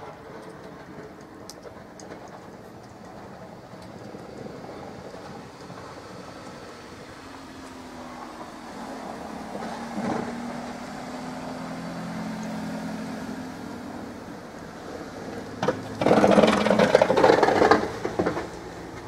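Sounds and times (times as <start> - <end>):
vehicle engine humming: 0.0 - 19.0
loud rough noise: 15.6 - 19.0.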